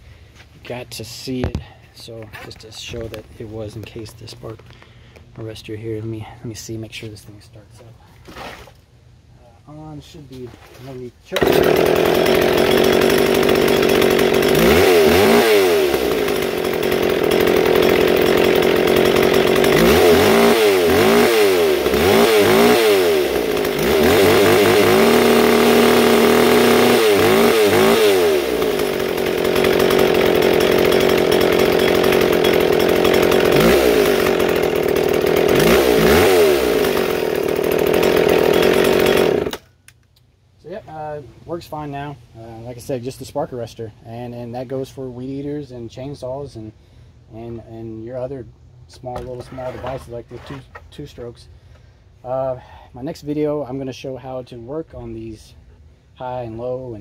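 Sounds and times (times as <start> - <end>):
chainsaw revving: 11.3 - 39.7.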